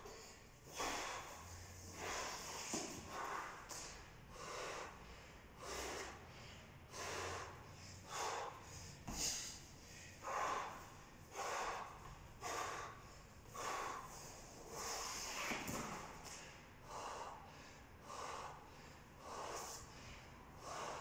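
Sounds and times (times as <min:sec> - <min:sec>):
man gasping for breath: 0:00.0 - 0:14.9.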